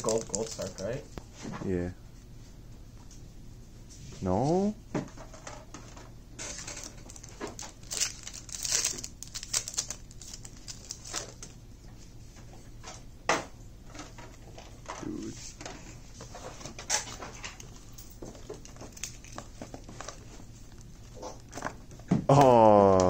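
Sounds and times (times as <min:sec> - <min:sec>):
cards rustling and clicking: 0:00.0 - 0:01.0, 0:06.4 - 0:11.6, 0:16.3 - 0:21.9
foil pack crinkling and tearing: 0:00.0 - 0:01.0, 0:06.4 - 0:11.6, 0:18.3 - 0:21.7.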